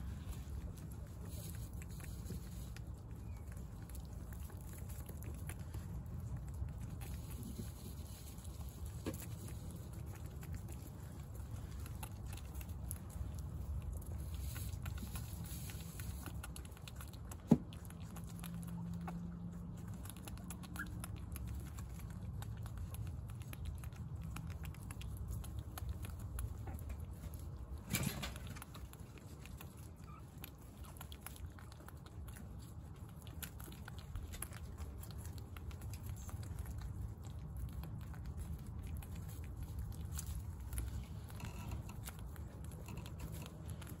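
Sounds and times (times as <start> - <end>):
guinea pigs chewing: 0.0 - 44.0.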